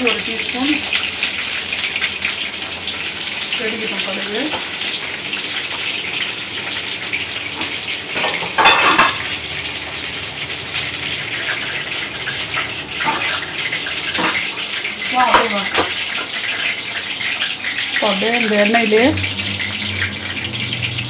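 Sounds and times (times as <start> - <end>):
vegetables frying in oil: 0.0 - 21.0
steel utensils clattering: 7.5 - 9.4, 13.0 - 21.0.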